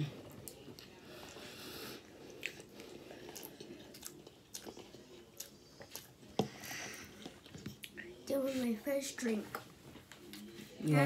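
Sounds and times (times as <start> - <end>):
close-up chewing: 0.2 - 8.1.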